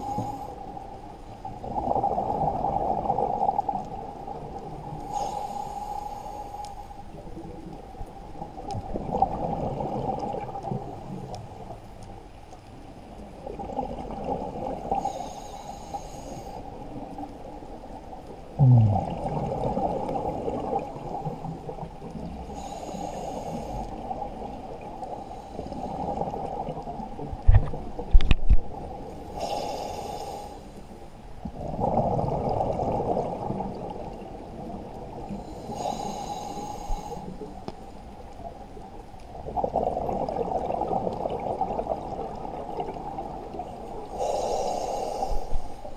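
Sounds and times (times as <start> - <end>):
regulator inhale hiss: 0.0 - 0.8, 5.0 - 7.2, 14.9 - 16.9, 22.4 - 24.1, 25.0 - 26.2, 29.2 - 31.0, 35.3 - 37.8, 44.0 - 45.9
exhaled bubbles gurgling: 1.4 - 6.0, 7.2 - 11.8, 12.9 - 15.9, 16.6 - 30.6, 31.4 - 37.6, 38.4 - 45.9.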